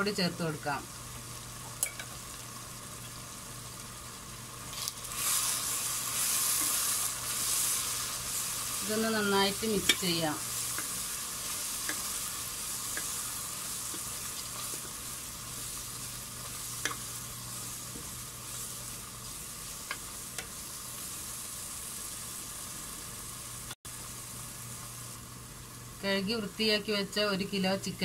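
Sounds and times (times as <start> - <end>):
food sizzling in a pan: 0.0 - 28.0
spatula clicking against pan: 12.9 - 13.2.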